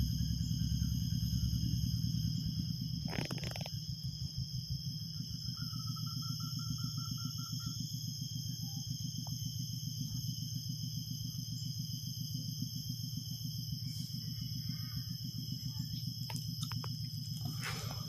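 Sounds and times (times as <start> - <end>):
motorcycle engine idling: 0.0 - 18.0
insects shrilling: 2.2 - 3.9, 13.7 - 18.0.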